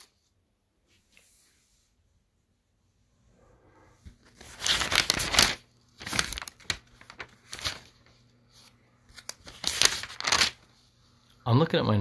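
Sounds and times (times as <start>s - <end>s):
paper rustling: 0.0s - 0.3s, 4.0s - 11.1s.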